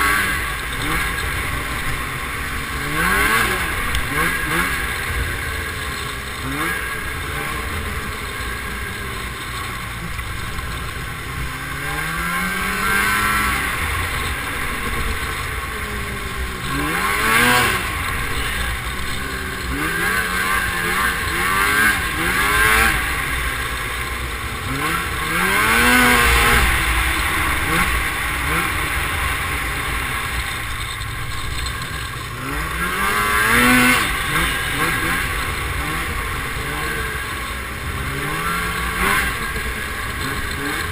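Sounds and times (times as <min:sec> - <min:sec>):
snowmobile engines revving: 0:00.0 - 0:40.9.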